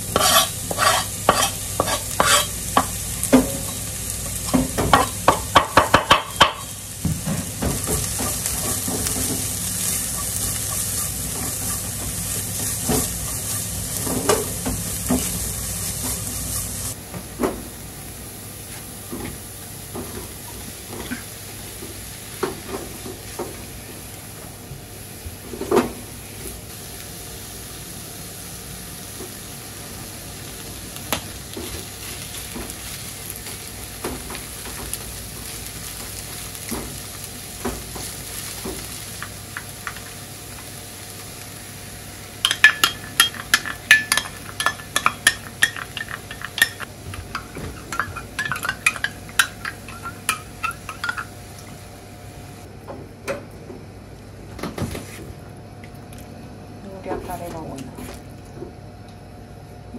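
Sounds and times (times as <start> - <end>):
shrimp and onion sizzling: 0.0 - 17.0, 26.6 - 52.7
spatula scraping pan: 0.1 - 2.9
spatula knocking on pan: 4.5 - 6.7
metal cup and utensil clinking: 42.5 - 51.3.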